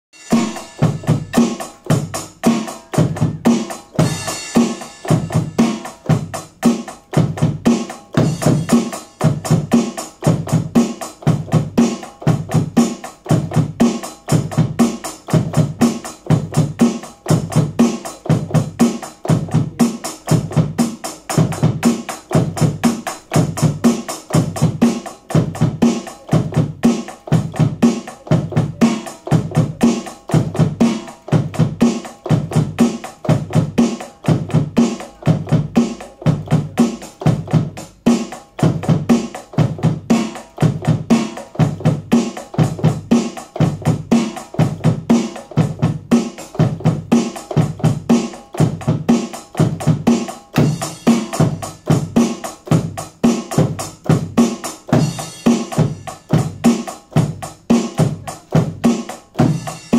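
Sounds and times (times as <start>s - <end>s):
electronic drum kit beat: 0.1s - 59.9s
cymbal crash: 0.2s - 1.6s.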